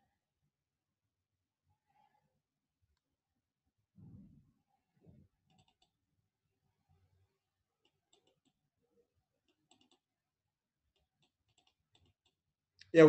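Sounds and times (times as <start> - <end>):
faint computer mouse clicks: 5.5 - 6.0, 7.8 - 8.6, 9.5 - 10.0, 11.0 - 12.4.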